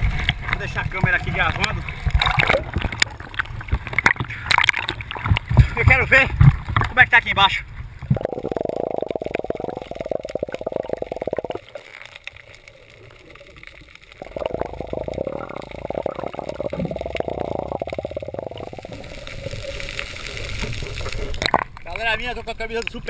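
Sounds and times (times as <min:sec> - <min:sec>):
underwater sloshing and bubbling: 0:00.0 - 0:22.0.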